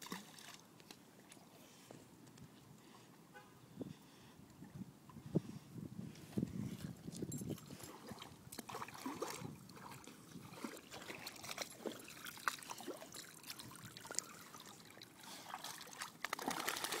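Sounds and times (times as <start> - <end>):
puppy splashing in shallow water: 0.0 - 1.4, 7.3 - 17.0.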